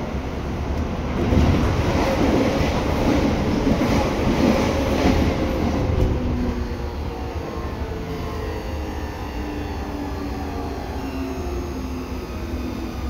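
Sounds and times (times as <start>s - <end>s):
electric train rolling and motor: 0.0s - 13.0s.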